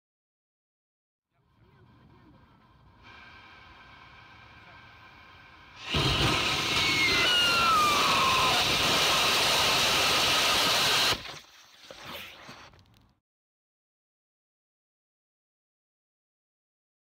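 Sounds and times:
rocket motor roaring: 1.7s - 13.1s
faint falling whistles: 5.7s - 12.8s.

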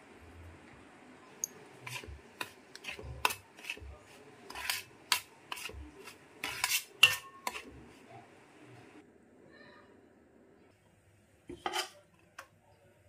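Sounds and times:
metal spoon scraping a steel pan: 1.8s - 3.9s, 4.5s - 7.7s, 11.5s - 12.0s.

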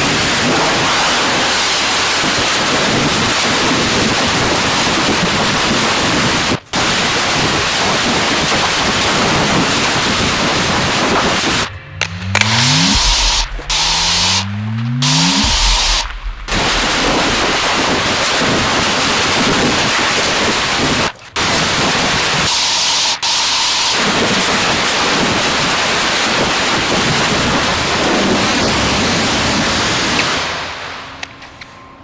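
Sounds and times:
pressure washer jet hissing: 12.5s - 18.8s.

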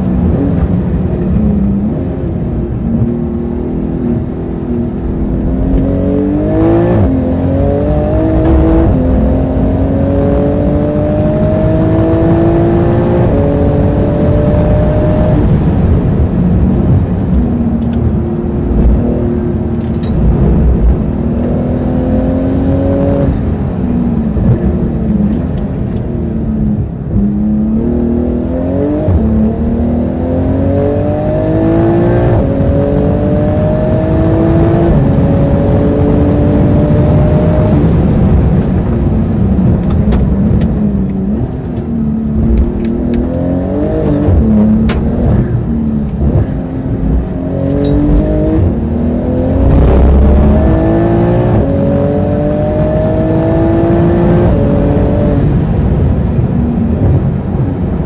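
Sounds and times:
car engine revving through gears: 0.0s - 58.0s.

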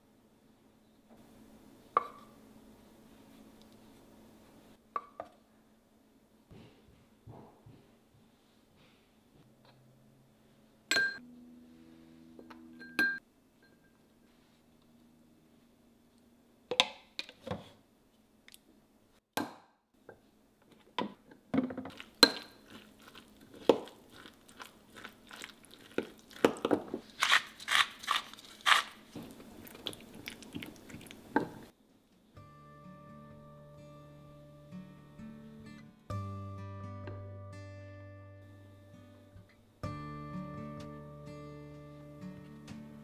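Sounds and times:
spatula mashing in glass jar: 21.9s - 29.0s.

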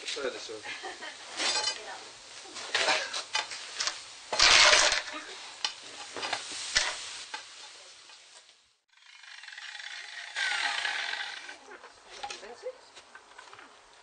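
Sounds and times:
iron pieces scraping and clinking: 1.4s - 1.8s, 2.7s - 5.2s.

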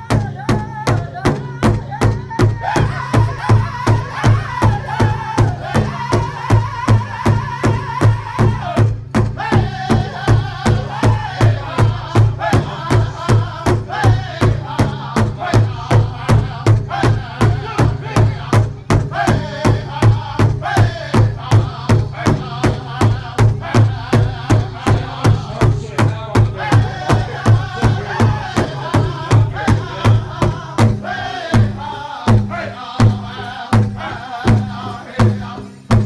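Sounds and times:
group singing: 0.0s - 36.0s
large drum beats: 0.0s - 36.0s.

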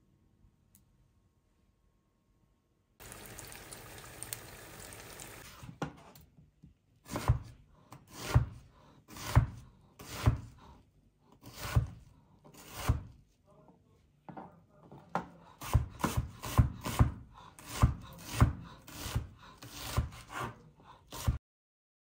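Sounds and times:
knife slicing onion on board: 7.0s - 13.2s, 15.1s - 21.4s.

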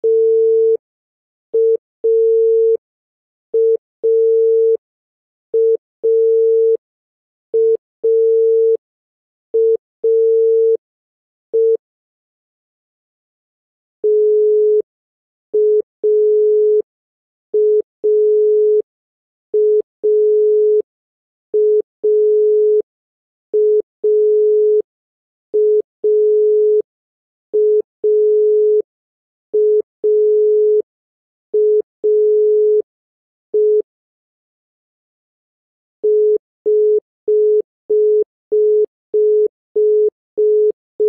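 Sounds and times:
telephone dial tone beeps: 0.0s - 0.8s, 1.6s - 2.8s, 3.6s - 4.8s, 5.6s - 6.8s, 7.6s - 8.8s, 9.6s - 10.8s, 11.6s - 11.8s, 14.0s - 14.9s, 15.6s - 16.9s, 17.6s - 18.9s, 19.6s - 20.9s, 21.6s - 22.9s, 23.6s - 24.9s, 25.6s - 26.9s, 27.6s - 28.9s, 29.6s - 30.9s, 31.6s - 32.9s, 33.5s - 33.9s, 36.0s - 40.8s.

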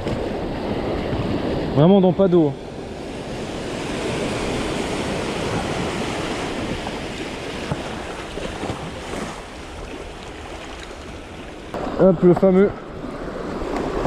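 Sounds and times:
sea waves washing over rocks: 0.0s - 14.0s.

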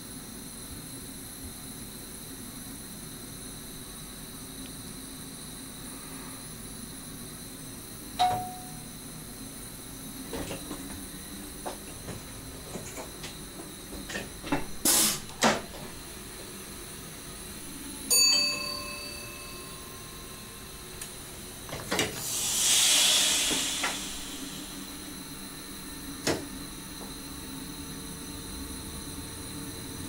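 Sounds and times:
bell-like ding: 8.2s - 8.8s, 18.1s - 20.4s
air hissing: 14.8s - 15.5s, 22.0s - 25.5s.

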